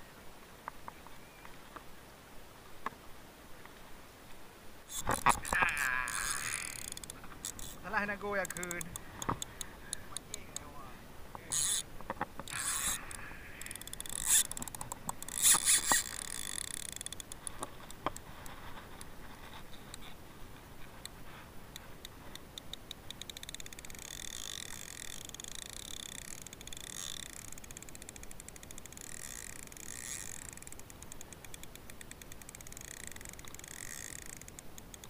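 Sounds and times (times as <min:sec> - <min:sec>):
faint steady hiss: 0:00.0 - 0:35.0
fishing reel clicking: 0:04.9 - 0:10.9, 0:11.5 - 0:19.1, 0:21.0 - 0:35.0.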